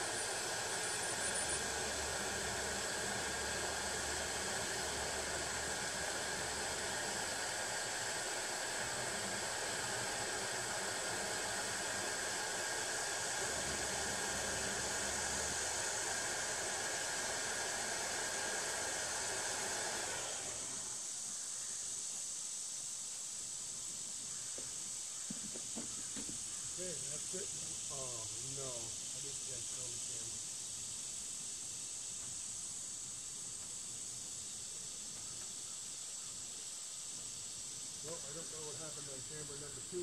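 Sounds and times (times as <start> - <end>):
faint high whine: 0.0 - 16.9, 26.5 - 40.0
air blower rushing hiss: 0.0 - 40.0.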